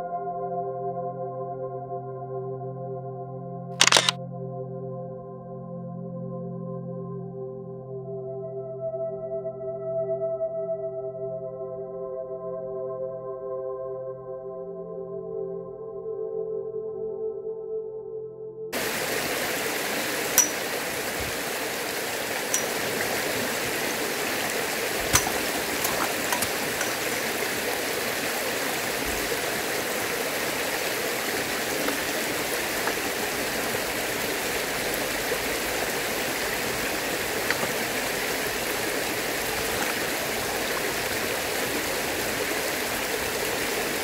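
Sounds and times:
sharp clicks or knocks: 0:03.8 - 0:04.2, 0:20.4 - 0:21.4, 0:22.4 - 0:27.7
stream running over stones: 0:18.8 - 0:44.0.

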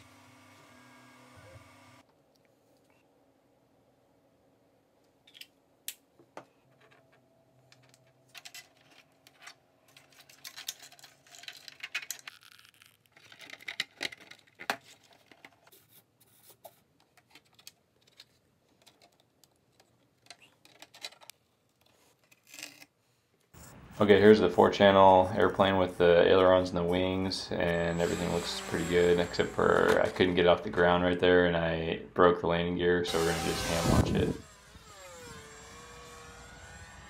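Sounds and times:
hands handling plastic parts: 0:05.1 - 0:23.5.

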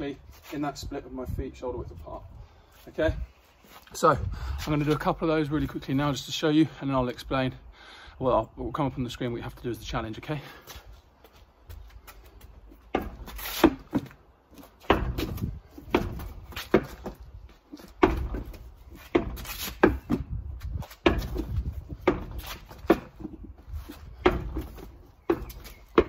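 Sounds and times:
ball thudding against doors: 0:12.9 - 0:14.2, 0:14.8 - 0:23.4, 0:24.1 - 0:26.0.

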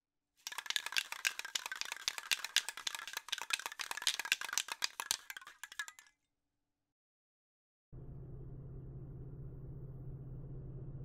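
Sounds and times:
spray can ball rattling: 0:00.4 - 0:06.1.

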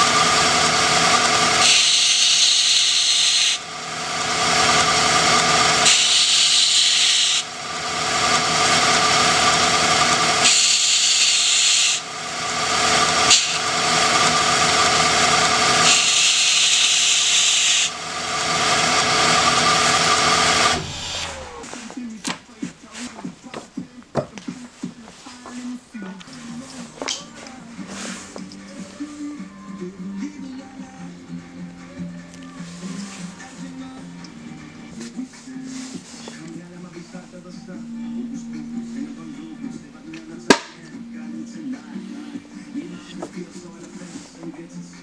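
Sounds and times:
belt grinder motor hum: 0:00.0 - 0:21.8
brass tube grinding on belt: 0:00.0 - 0:21.8.

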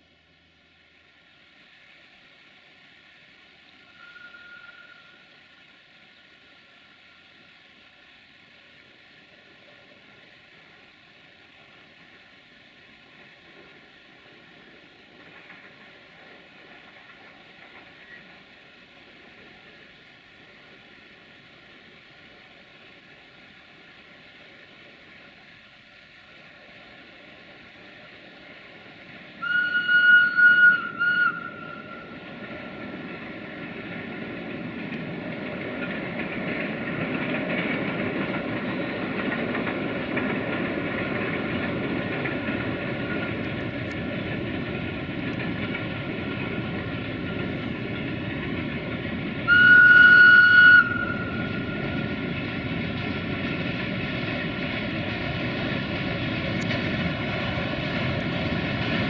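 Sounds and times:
diesel locomotive hauling freight train: 0:00.0 - 0:59.0
high train whistle blasts: 0:03.8 - 0:05.3, 0:29.4 - 0:32.2, 0:49.4 - 0:51.8.

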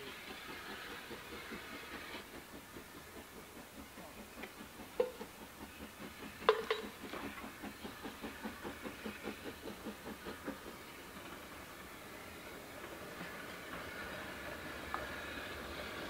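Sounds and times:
steam locomotive exhaust beats: 0:00.0 - 0:16.0.

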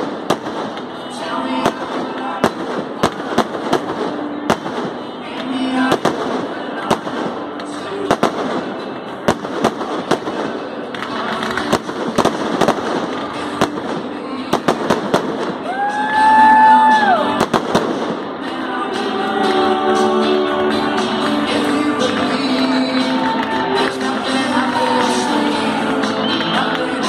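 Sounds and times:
fireworks bangs and crackles: 0:00.0 - 0:18.6
music: 0:00.0 - 0:27.0.

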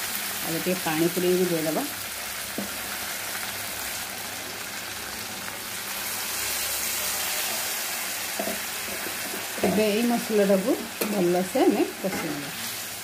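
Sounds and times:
paste sizzling in hot oil: 0:00.0 - 0:13.0.

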